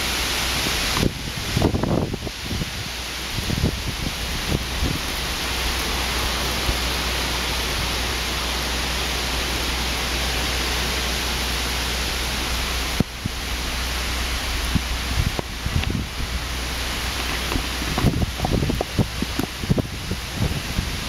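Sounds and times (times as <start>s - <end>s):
wind and rain through trees: 0.0s - 21.0s
wind rumble on microphone: 0.0s - 21.0s.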